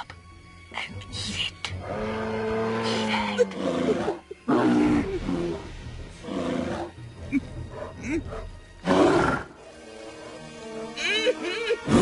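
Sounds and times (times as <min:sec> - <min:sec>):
bear growling and roaring: 0:01.8 - 0:10.5.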